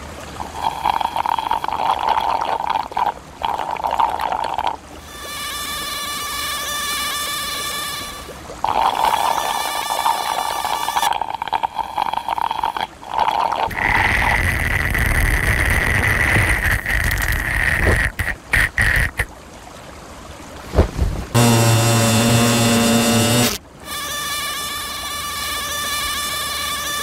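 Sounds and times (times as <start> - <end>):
cartoon insect wing buzzing: 5.0 - 12.8, 21.4 - 27.0.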